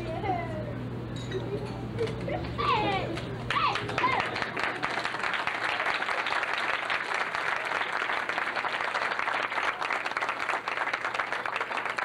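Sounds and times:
crowd clapping: 3.1s - 12.0s.

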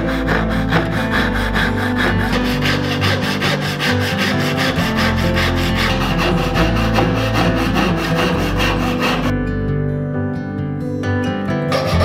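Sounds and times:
backsaw rasping through wood: 0.0s - 9.3s, 11.7s - 12.0s
background music: 0.0s - 12.0s.

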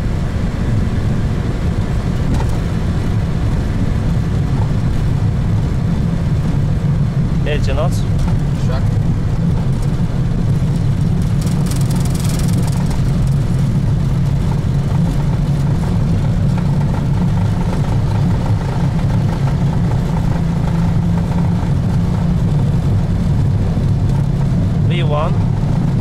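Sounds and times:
wheels rolling on runway: 7.4s - 26.0s.

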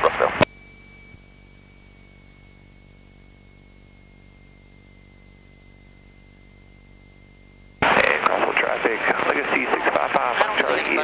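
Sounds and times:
faint engine hum: 0.0s - 11.0s
thin high whine: 0.0s - 11.0s
person speaking over intercom: 7.8s - 11.0s.

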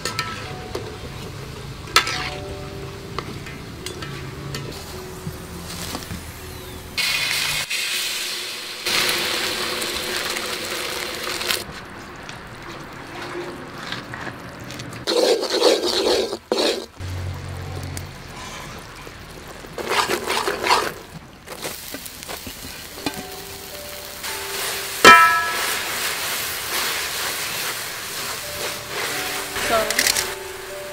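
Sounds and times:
metal spoon scraping a pan: 0.0s - 0.6s, 1.9s - 2.4s, 15.1s - 17.0s
liquid sizzling in a wok: 0.0s - 11.7s, 15.1s - 30.9s.

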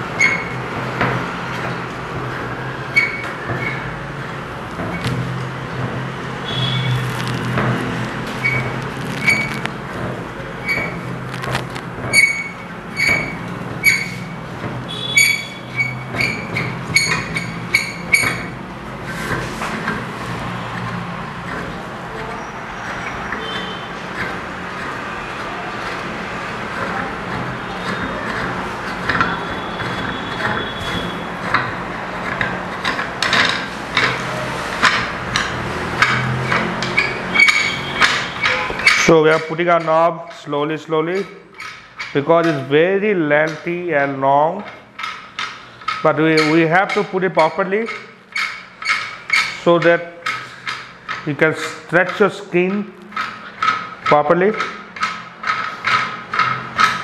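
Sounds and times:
sharp metallic clicks and knocks: 0.0s - 57.0s.

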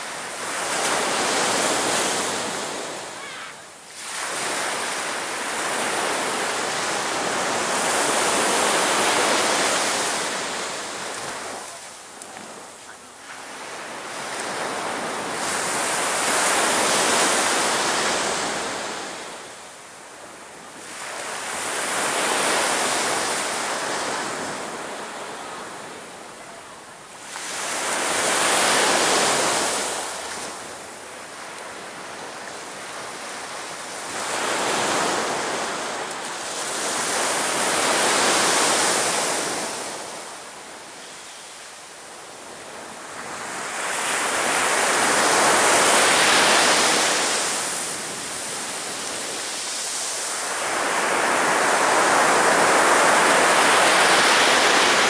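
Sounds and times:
waves breaking on a beach: 0.0s - 55.0s.

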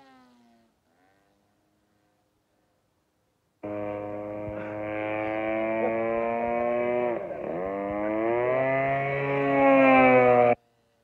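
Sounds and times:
model plane engine buzzing: 3.6s - 10.6s.

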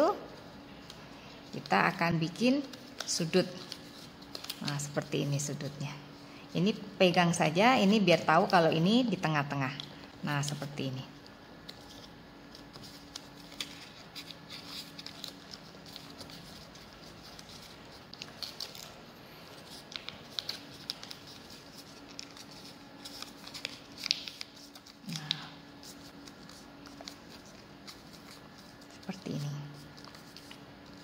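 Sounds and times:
faint steady hum: 0.0s - 31.0s
paper crinkling and rustling: 0.6s - 5.8s, 11.6s - 31.0s.

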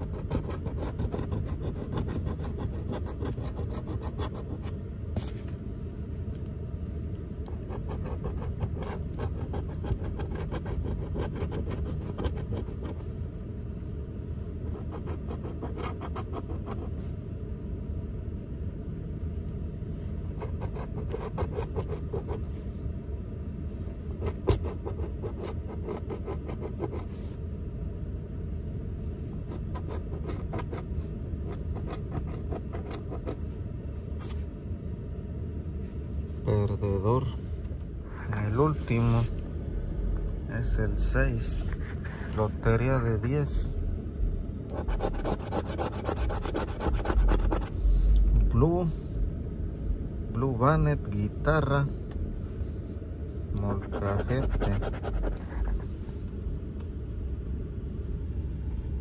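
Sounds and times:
steady low rumble: 0.0s - 59.0s
coin scraping lottery ticket: 7.7s - 13.0s, 20.5s - 22.4s, 44.8s - 47.7s, 53.8s - 55.7s.

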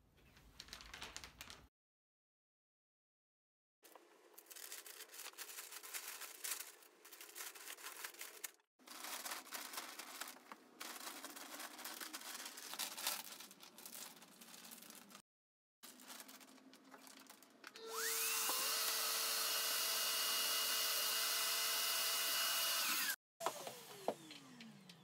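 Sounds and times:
plastic bag crinkling and rustling: 0.3s - 1.7s, 3.9s - 15.2s, 15.8s - 17.8s.

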